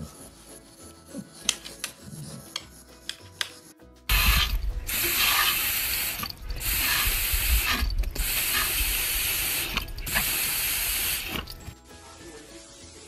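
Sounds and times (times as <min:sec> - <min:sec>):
water jet spraying with rushing hiss: 0:04.1 - 0:11.7.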